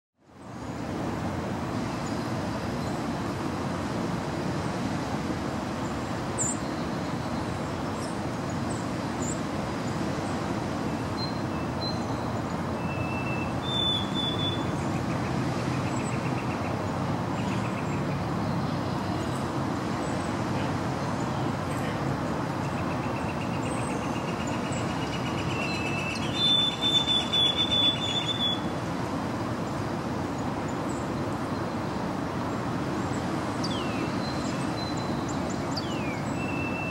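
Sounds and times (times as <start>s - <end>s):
sparrow whistling song: 11.2s - 14.8s, 23.2s - 28.7s, 33.6s - 36.9s.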